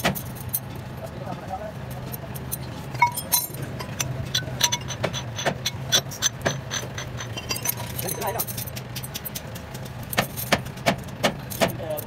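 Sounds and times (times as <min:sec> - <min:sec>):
metal shims clinking: 0:01.9 - 0:10.8.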